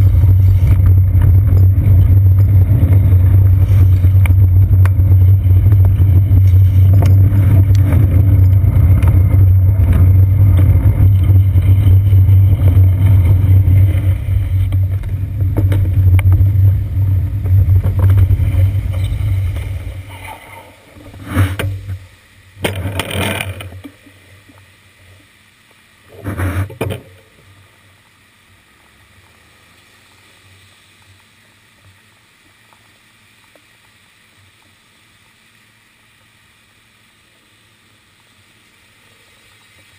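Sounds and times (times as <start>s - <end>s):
bicycle rumbling on wet pavement: 0.0s - 24.5s.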